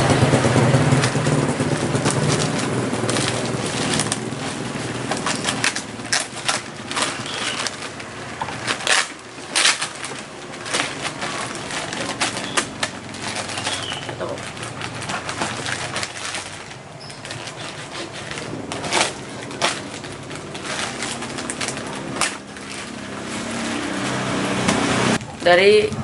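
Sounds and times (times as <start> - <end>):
plastic crackling and tearing: 0.0 - 25.3
knife slicing packing tape: 8.6 - 14.3, 15.0 - 23.7.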